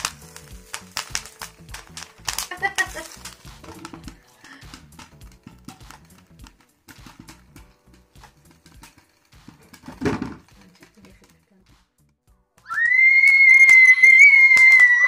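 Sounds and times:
loud clatter: 0:00.0 - 0:11.4
popcorn popping: 0:00.0 - 0:15.0.

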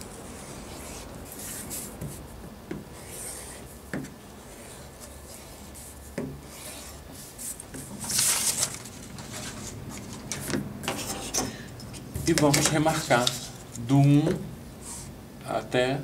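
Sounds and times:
paper rustling: 0:06.5 - 0:10.6, 0:12.2 - 0:14.1.

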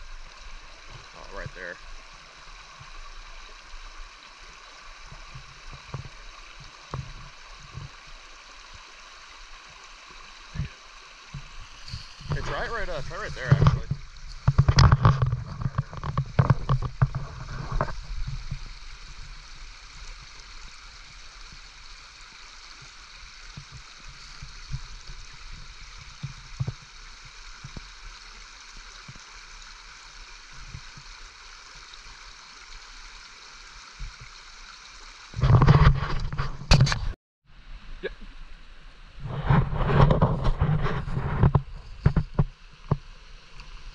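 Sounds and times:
brook running: 0:00.0 - 0:36.8
rumbling knocks and bumps: 0:11.4 - 0:18.7, 0:39.3 - 0:42.5.

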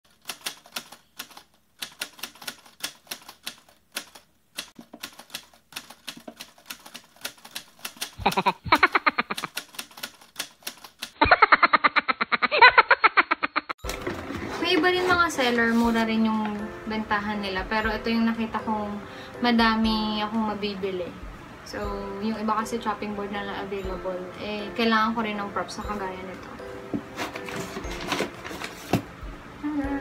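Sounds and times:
typewriter key clacks: 0:00.1 - 0:08.2, 0:09.3 - 0:11.2.

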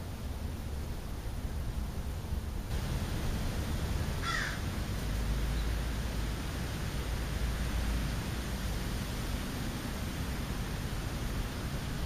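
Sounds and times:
crow cawing: 0:04.2 - 0:04.6.

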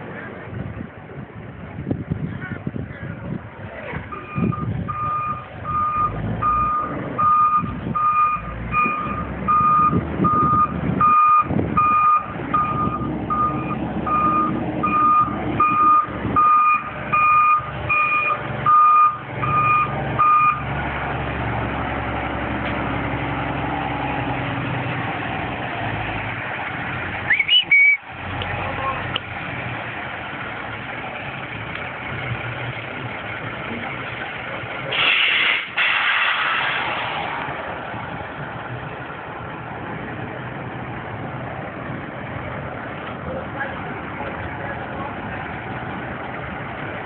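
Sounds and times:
diesel engine running: 0:00.0 - 0:47.0
truck backup alarm beeping: 0:04.1 - 0:20.8.

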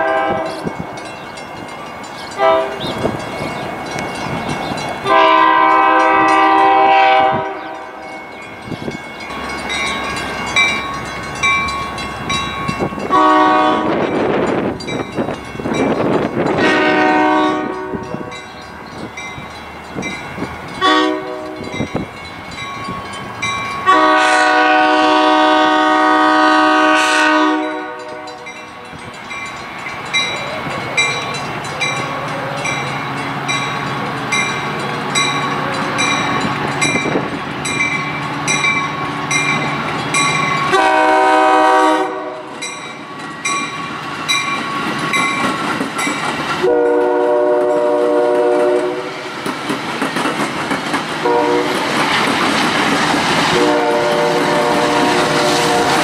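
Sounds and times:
train horn blasts: 0:00.0 - 0:00.7, 0:02.4 - 0:03.2, 0:05.0 - 0:08.2, 0:13.0 - 0:14.4, 0:16.4 - 0:18.4, 0:20.8 - 0:21.8, 0:23.8 - 0:28.6, 0:40.7 - 0:42.6, 0:46.6 - 0:49.3, 0:51.2 - 0:51.9, 0:53.5 - 0:56.0
crossing bells dinging: 0:00.0 - 0:49.6
train rumble: 0:00.0 - 0:56.0.

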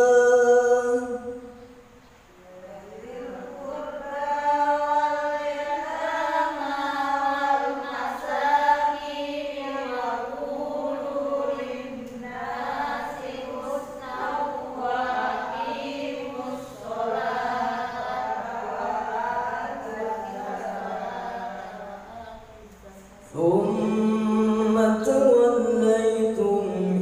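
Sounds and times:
man reciting in melodic chant: 0:00.0 - 0:01.7, 0:23.2 - 0:27.0.

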